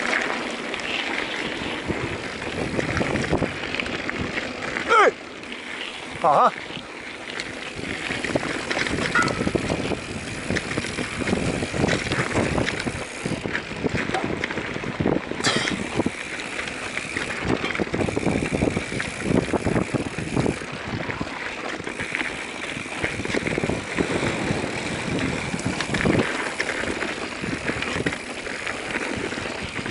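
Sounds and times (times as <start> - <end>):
bike tyre noise on dirt: 0.0 - 29.9
bike knocks and rattles: 7.4 - 14.6, 15.4 - 20.6.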